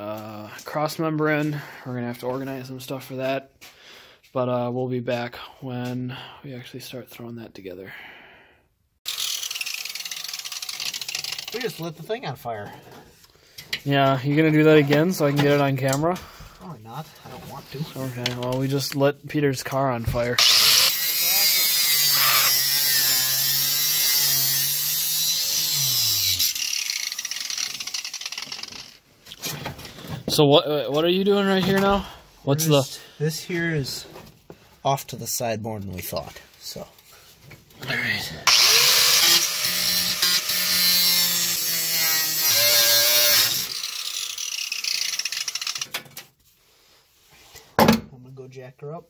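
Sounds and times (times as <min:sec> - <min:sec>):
power tool cutting: 0:09.1 - 0:11.6, 0:20.4 - 0:29.0, 0:38.4 - 0:45.9.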